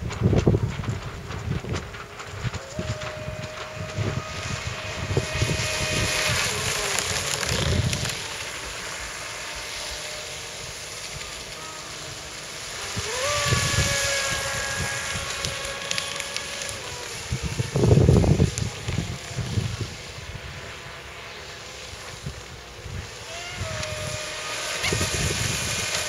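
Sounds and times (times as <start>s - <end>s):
wind buffeting microphone: 0.0s - 21.0s, 22.0s - 26.0s
electric motor whine: 0.0s - 26.0s
water spray hissing: 4.2s - 26.0s.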